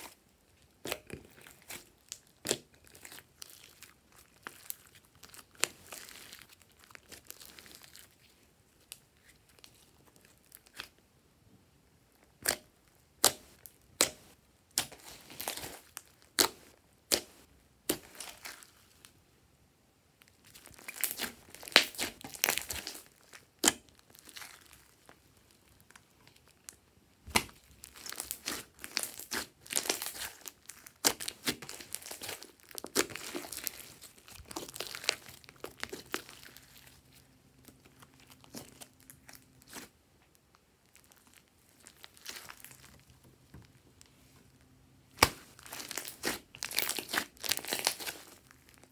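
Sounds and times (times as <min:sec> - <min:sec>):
slime popping and crackling: 0:20.5 - 0:25.2, 0:26.3 - 0:39.9, 0:40.8 - 0:43.2, 0:45.1 - 0:48.9.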